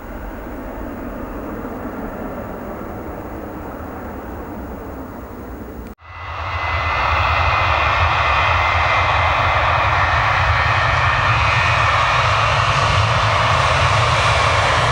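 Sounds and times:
jet engines at takeoff: 0.0s - 14.9s.

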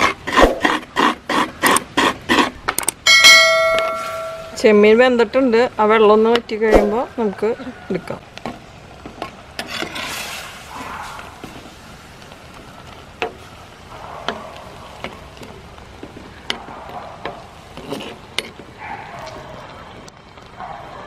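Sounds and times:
prawns boiling and sizzling: 0.0s - 21.0s
metal spoon scraping a pot: 9.6s - 10.7s, 17.7s - 18.6s.

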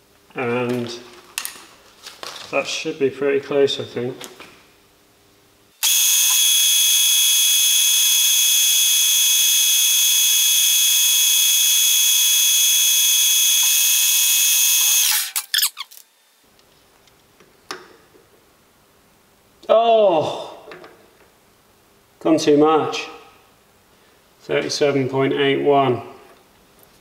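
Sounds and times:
metal lathe whining: 5.8s - 15.2s.

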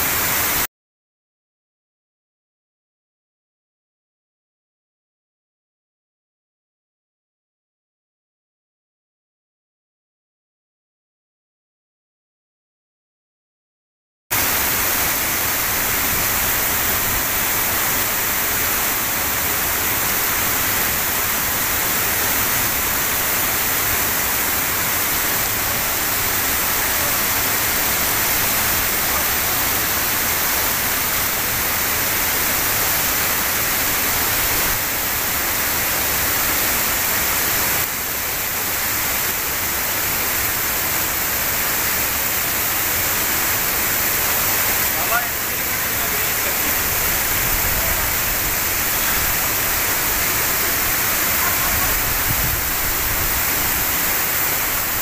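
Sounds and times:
waterfall rushing and splashing: 0.0s - 0.7s, 14.3s - 55.0s.

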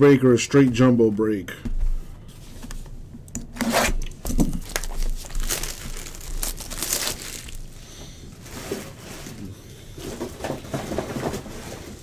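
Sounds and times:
plastic shrink wrap tearing: 3.6s - 7.8s.

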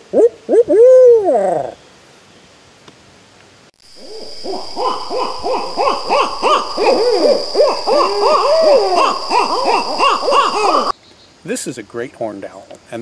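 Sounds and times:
owls hooting and cackling: 0.1s - 1.8s, 4.0s - 10.9s.

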